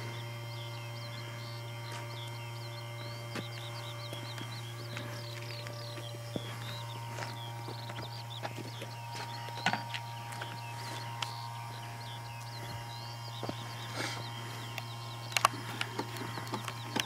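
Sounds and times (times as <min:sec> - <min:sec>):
small birds chirping: 0:00.0 - 0:17.0
steady low hum: 0:00.0 - 0:17.0
sharp clicks: 0:14.7 - 0:17.0.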